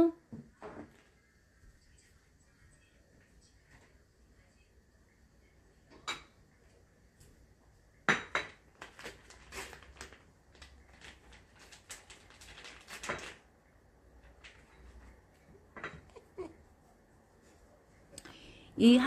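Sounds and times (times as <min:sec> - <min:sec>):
dishes and cutlery clinking: 0:05.9 - 0:06.4, 0:08.0 - 0:08.7, 0:15.7 - 0:16.5.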